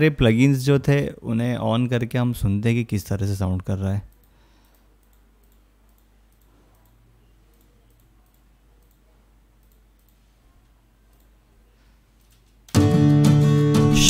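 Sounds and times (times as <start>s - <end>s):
faint computer mouse clicks: 4.1s - 10.3s.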